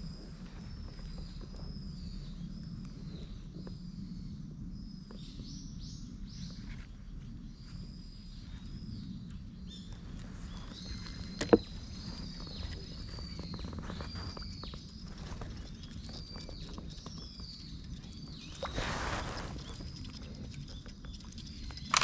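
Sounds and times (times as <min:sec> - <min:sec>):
low outdoor rumble: 0:00.0 - 0:22.0
birds calling: 0:06.4 - 0:22.0.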